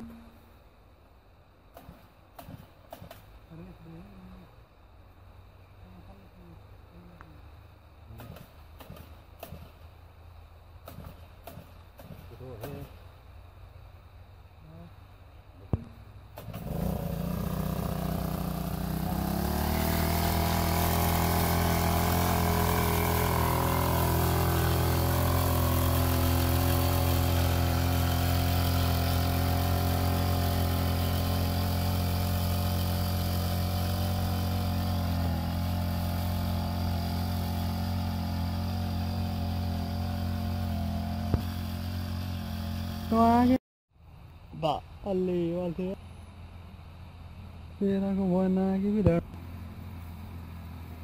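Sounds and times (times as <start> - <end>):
two-stroke mist-blower engine: 1.7 - 4.1, 8.0 - 9.8, 10.8 - 13.0, 16.3 - 43.6.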